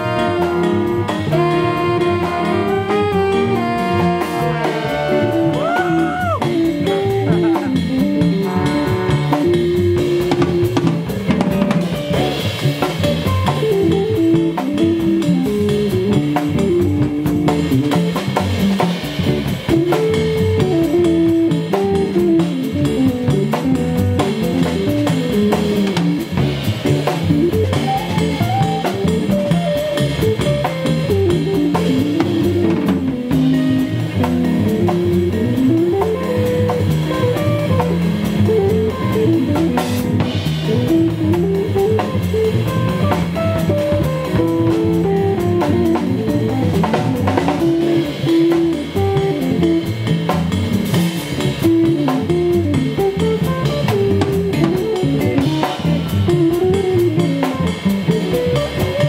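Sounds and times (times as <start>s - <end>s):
saxophones: 0.0s - 10.4s
double bass: 0.0s - 59.0s
drum kit with rimshots: 0.0s - 59.0s
electric guitar: 0.0s - 59.0s.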